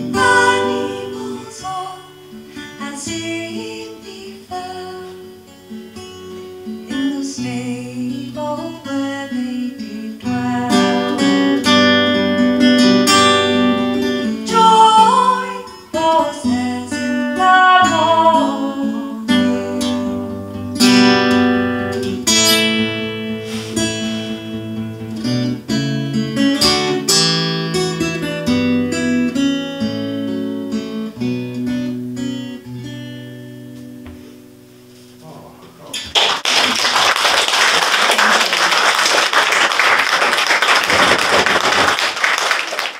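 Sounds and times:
woman singing: 0.0s - 5.3s, 6.9s - 11.8s, 14.2s - 20.0s
acoustic guitar strummed and picked: 0.0s - 36.2s.

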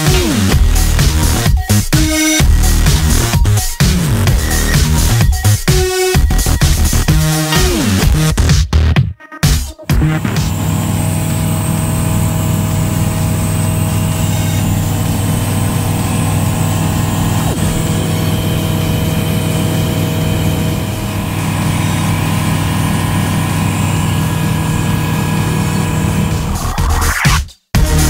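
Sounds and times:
propeller aircraft engine droning: 10.5s - 26.7s.

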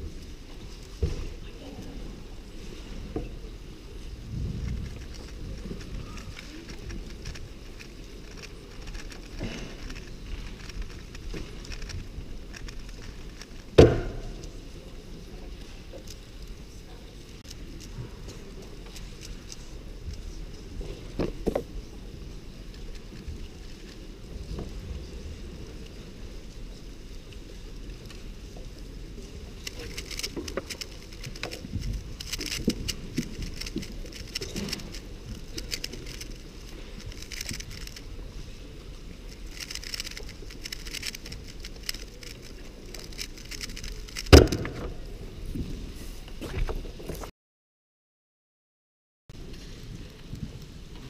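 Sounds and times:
puzzle cube clicking: 29.6s - 38.1s, 39.3s - 44.7s.

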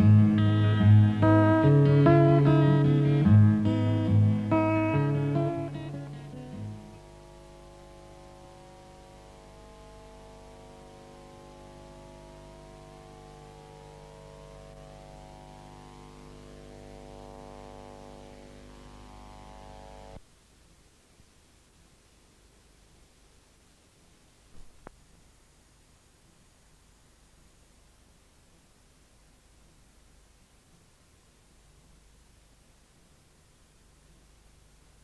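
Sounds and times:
guitar strumming: 0.0s - 20.2s
sustained music chord: 0.0s - 20.2s.

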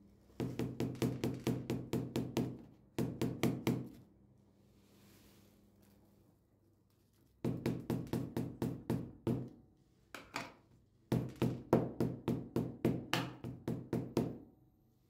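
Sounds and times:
knocking plastic seed container: 11.1s - 13.9s.

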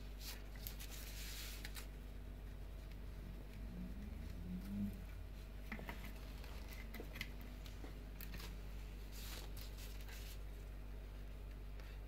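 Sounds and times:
tape rustling and crackling: 0.0s - 10.7s
low steady hum: 0.0s - 12.0s.

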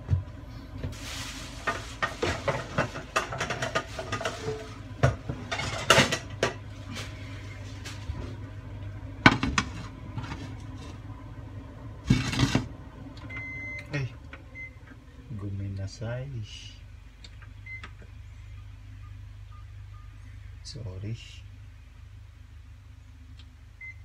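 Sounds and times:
pans and utensils clattering: 1.6s - 6.6s.

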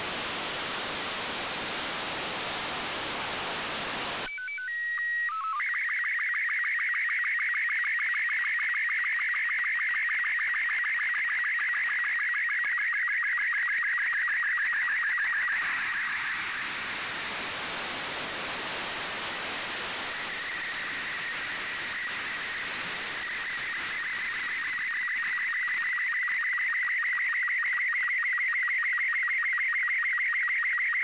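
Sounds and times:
radio receiver hiss: 0.0s - 4.3s, 14.2s - 27.4s.

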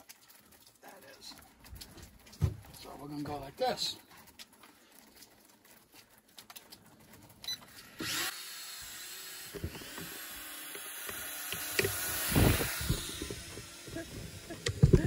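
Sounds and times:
quadcopter motors whining: 7.8s - 15.0s.

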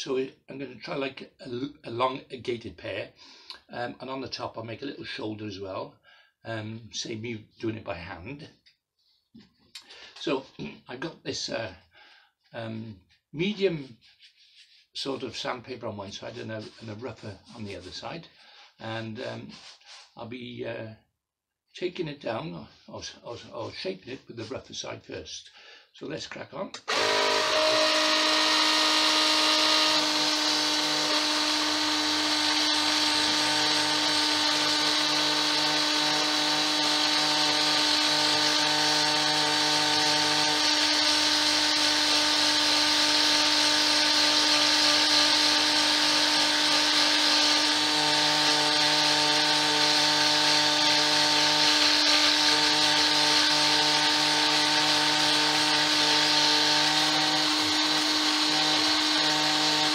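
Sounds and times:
mini lathe motor hum: 26.9s - 59.9s.

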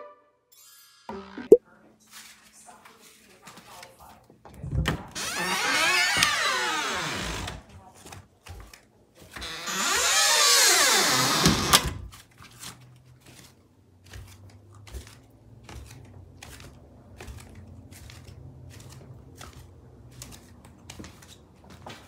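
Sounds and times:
soft footsteps on carpeted stairs: 14.0s - 22.0s.

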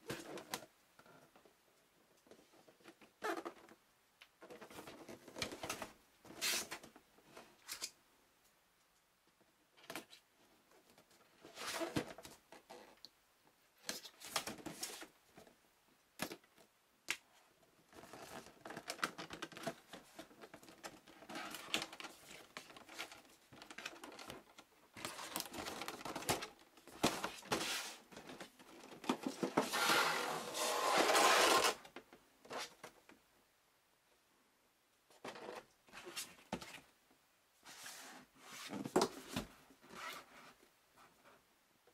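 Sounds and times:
cardboard flaps rubbing and folding: 25.0s - 31.8s, 37.6s - 40.6s
plastic tray scraping out of box: 29.2s - 31.8s.

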